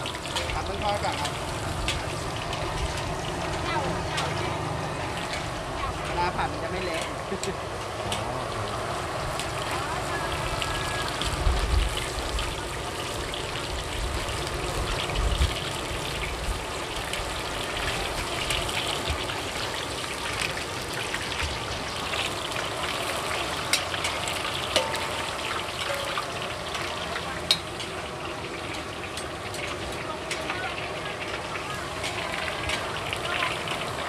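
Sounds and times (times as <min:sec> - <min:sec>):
metal utensils clicking on wok: 0:00.0 - 0:08.2, 0:17.0 - 0:34.0
food deep-frying in oil: 0:00.0 - 0:34.0.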